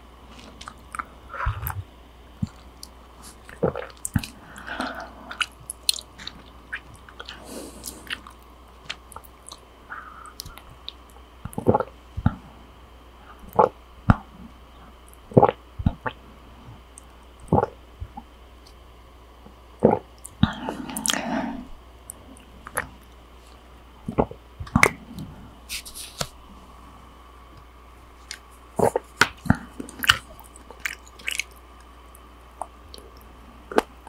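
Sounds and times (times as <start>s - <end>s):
gulping: 19.8s - 21.3s.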